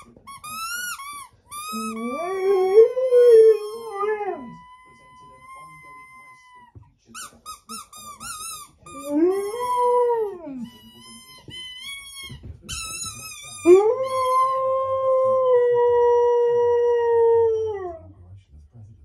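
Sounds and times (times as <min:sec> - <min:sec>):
squeaky dog toy squeaks: 0:00.0 - 0:14.6
dog howling: 0:01.7 - 0:06.6, 0:08.9 - 0:10.7, 0:13.6 - 0:18.1.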